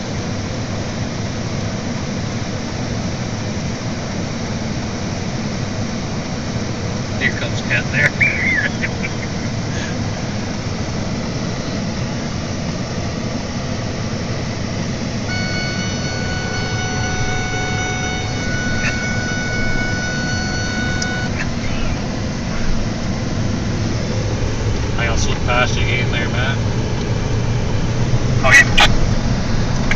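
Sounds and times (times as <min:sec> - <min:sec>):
vehicle engine and road rumble: 0:00.0 - 0:29.9
high pitched tone: 0:15.2 - 0:22.2.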